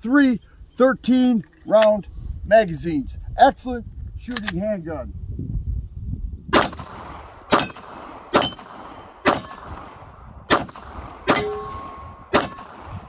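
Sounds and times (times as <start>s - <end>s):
pistol shots: 6.6s - 13.0s
metallic ring of steel targets: 8.4s - 8.7s, 11.2s - 12.7s.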